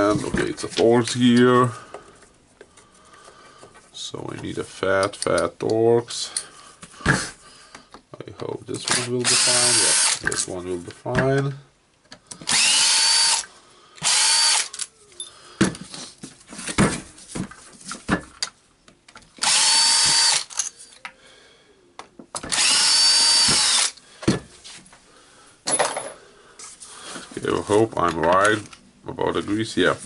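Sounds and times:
cordless drill whining: 0:08.9 - 0:10.3, 0:12.4 - 0:14.9, 0:19.4 - 0:20.7, 0:22.4 - 0:24.0.

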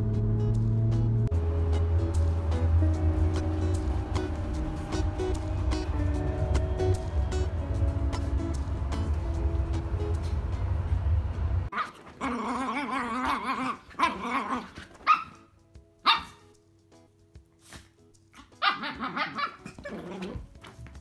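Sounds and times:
puppy barking: 0:11.7 - 0:16.4, 0:18.4 - 0:20.5
puppy growling: 0:11.8 - 0:15.0, 0:18.8 - 0:20.6.

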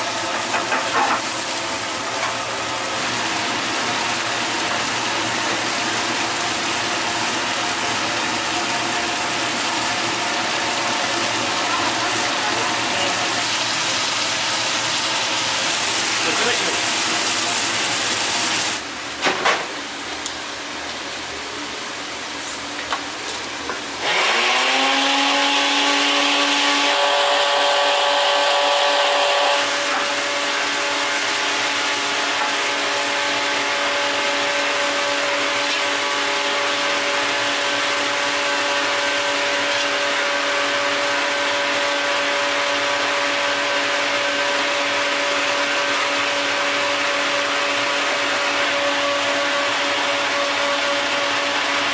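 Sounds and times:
pan simmering with hiss: 0:00.0 - 0:24.5
electric motor whine: 0:24.0 - 0:30.9.

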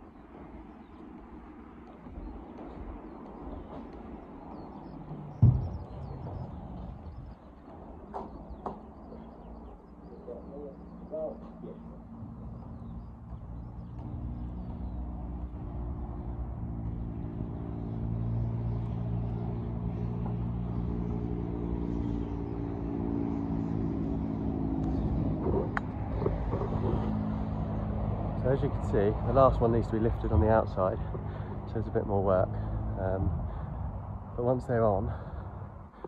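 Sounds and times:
engine running steadily: 0:00.0 - 0:36.0
sharp knock: 0:05.4 - 0:06.2.

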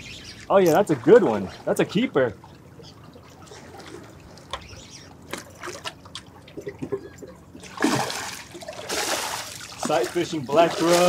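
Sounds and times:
water lapping against rocks: 0:00.5 - 0:11.0
fish thrashing splash: 0:07.6 - 0:11.0.

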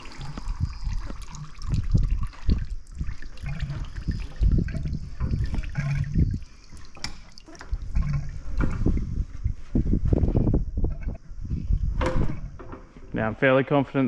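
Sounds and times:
oil gurgling into a bucket: 0:00.0 - 0:12.6.

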